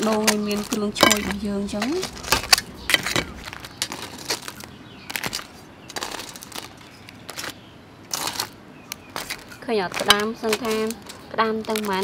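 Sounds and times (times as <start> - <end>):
rustles: 0.0 - 12.0
metal tongs clicking on crab shells: 8.1 - 12.0.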